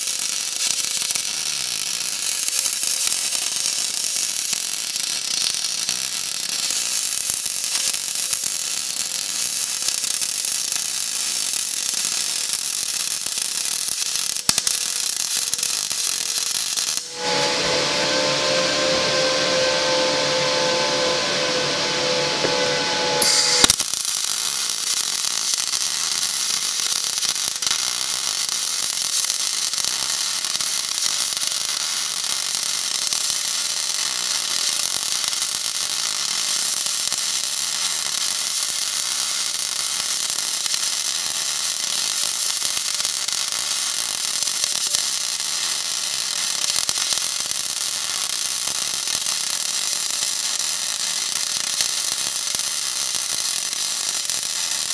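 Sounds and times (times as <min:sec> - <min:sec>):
welding arc crackling hiss: 0:00.0 - 0:17.9, 0:23.1 - 0:54.9.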